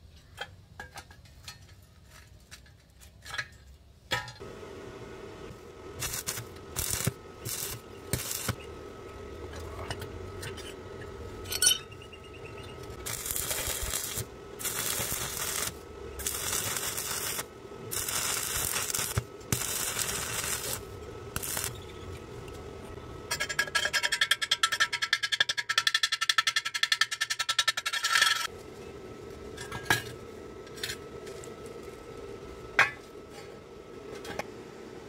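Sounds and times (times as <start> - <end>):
steady hum: 4.1 - 23.8, 28.5 - 35.0
welding arc crackling and hissing: 4.4 - 23.0.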